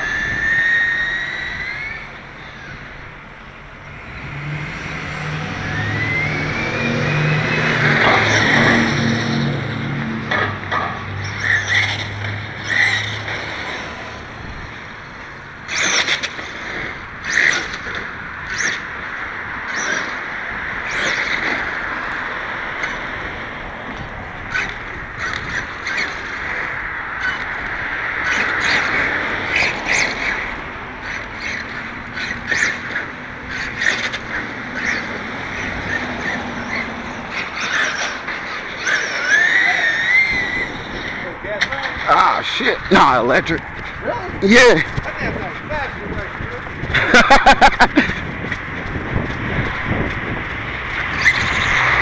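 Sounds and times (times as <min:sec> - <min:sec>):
electric toy truck motor whine: 0:00.0 - 0:09.7, 0:23.9 - 0:41.4, 0:50.9 - 0:52.0.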